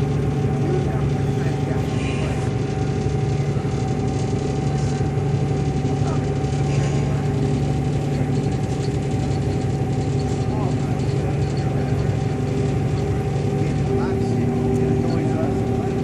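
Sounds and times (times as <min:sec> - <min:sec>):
ferry engine humming: 0:00.0 - 0:16.0
high steady tone: 0:12.7 - 0:16.0.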